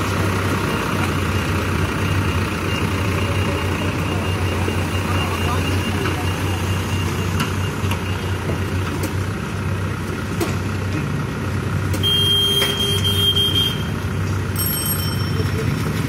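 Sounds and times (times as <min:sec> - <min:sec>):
engine running with low drone: 0:00.0 - 0:16.0
high steady beep tone: 0:01.2 - 0:08.3, 0:12.0 - 0:13.9.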